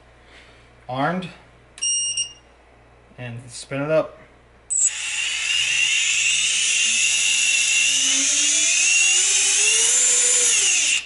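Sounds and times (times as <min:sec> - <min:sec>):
drone motors whining: 0:04.7 - 0:11.0.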